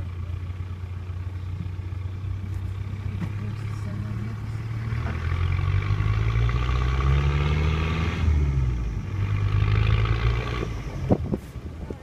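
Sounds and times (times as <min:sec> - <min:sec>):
vehicle engine reversing: 0:00.0 - 0:12.0.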